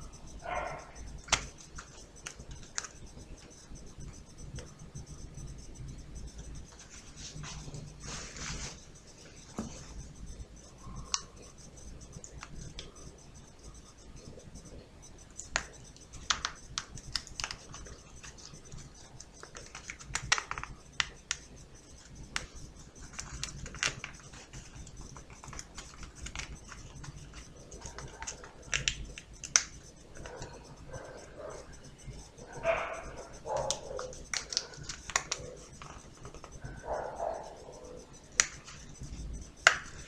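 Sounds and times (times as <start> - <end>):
folded card clicking: 1.2 - 1.6, 34.3 - 36.4.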